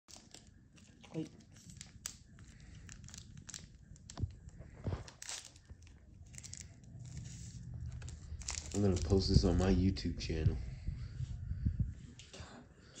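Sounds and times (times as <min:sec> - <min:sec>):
foil packet crinkling and tearing: 0:00.1 - 0:09.8.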